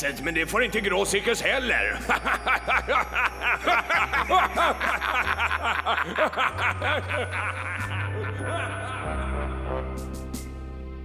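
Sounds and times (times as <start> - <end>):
background music low notes: 0.0 - 11.0
cartoon man laughing: 1.9 - 9.9.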